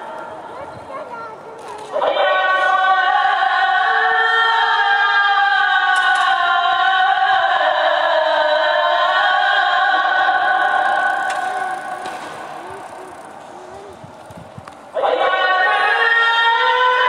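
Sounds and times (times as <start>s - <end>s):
call to prayer over loudspeakers: 0.0s - 17.0s.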